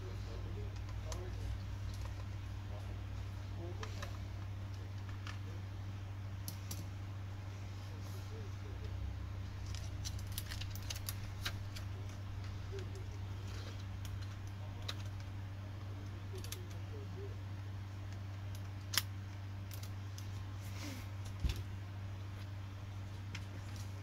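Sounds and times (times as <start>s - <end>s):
steady low hum: 0.0s - 24.0s
hands handling plastic parts: 8.8s - 15.4s, 16.0s - 16.9s, 18.1s - 21.7s.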